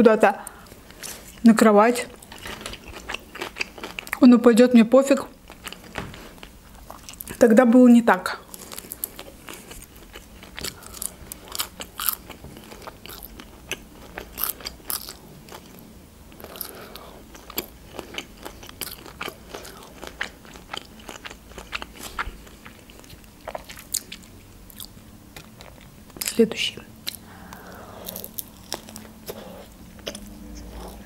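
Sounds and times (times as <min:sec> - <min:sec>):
mouth chewing food: 0:02.2 - 0:04.2, 0:08.5 - 0:26.4, 0:27.0 - 0:31.0.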